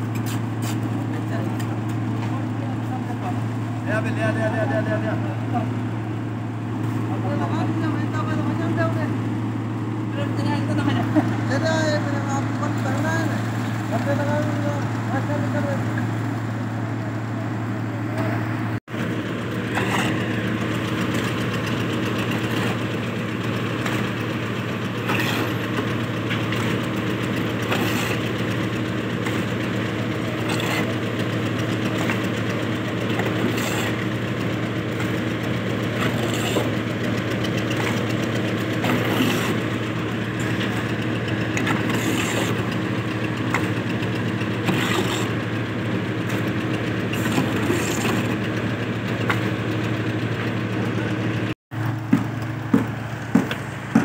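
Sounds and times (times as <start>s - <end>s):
motor engine running: 0.0s - 54.0s
concrete scraping in metal wheelbarrow: 19.7s - 20.4s, 22.2s - 22.9s, 25.0s - 31.2s, 31.8s - 32.3s, 33.1s - 34.2s, 35.9s - 36.8s, 37.6s - 38.2s, 38.8s - 39.7s, 41.6s - 42.8s, 44.6s - 45.4s, 47.1s - 48.4s.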